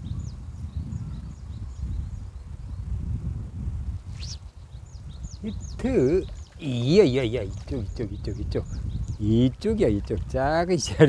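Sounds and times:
low microphone rumble: 0.0 - 10.6
bird calling: 4.2 - 9.4.

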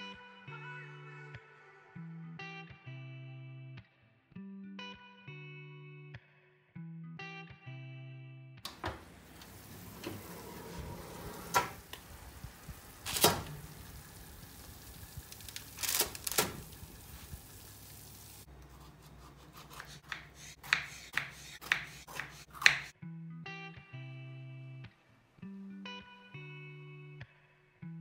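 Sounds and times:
oven door clanks: 8.7 - 12.2, 13.0 - 13.9, 15.8 - 16.8
knife slicing on wooden board: 18.7 - 22.9.

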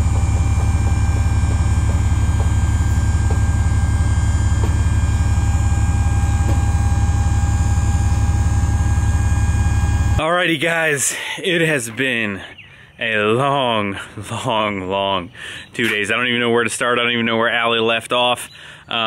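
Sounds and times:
engine running steadily: 0.0 - 10.2
faint steady whine: 0.0 - 10.3.

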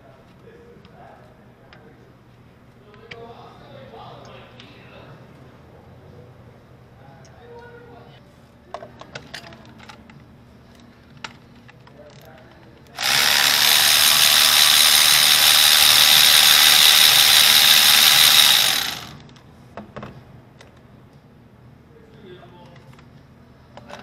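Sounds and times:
electric ratchet whining: 13.0 - 19.2.

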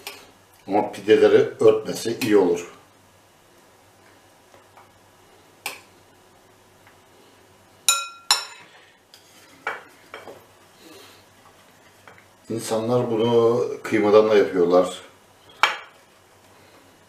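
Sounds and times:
spoon clinking on glass bowl: 7.9 - 8.6.

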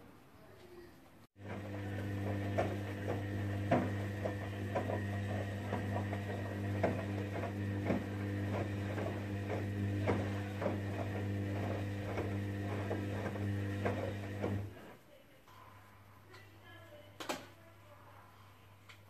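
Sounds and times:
water splashing in washing drum: 1.4 - 14.7
washing machine motor hum: 1.4 - 15.0.

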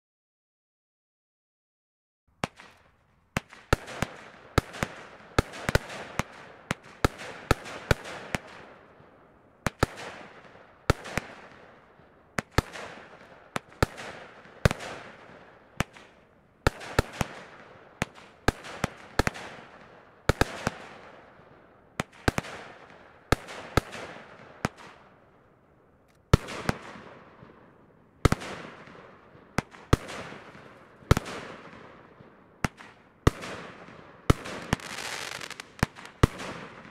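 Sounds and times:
firework bangs: 32.6 - 36.9.

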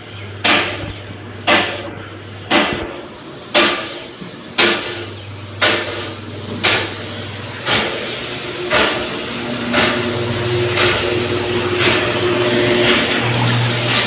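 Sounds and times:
sharp knocks: 0.4 - 4.0, 4.6 - 7.0, 9.7 - 10.1.

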